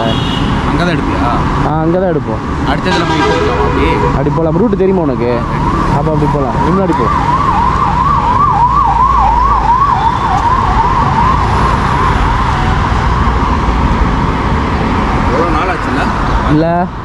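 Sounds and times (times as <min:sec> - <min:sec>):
traffic rumble: 0:00.0 - 0:17.0
wind: 0:00.0 - 0:17.0
siren yelping: 0:02.9 - 0:13.9.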